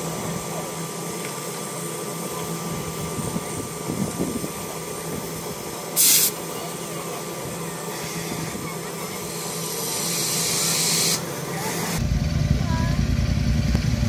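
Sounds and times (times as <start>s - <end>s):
sharp steam hiss: 0.0s - 12.0s
steam locomotive humming: 0.0s - 14.0s.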